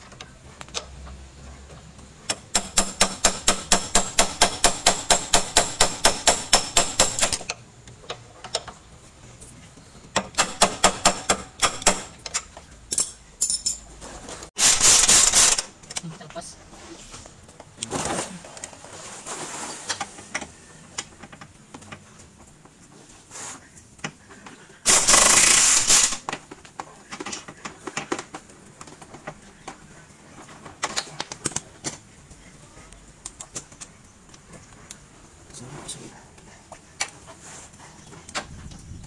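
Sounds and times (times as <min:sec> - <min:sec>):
pneumatic impact wrench bursts: 0:02.5 - 0:07.5, 0:14.6 - 0:15.7, 0:24.8 - 0:26.3
clinks of tools and metal: 0:10.1 - 0:14.3, 0:30.7 - 0:32.0.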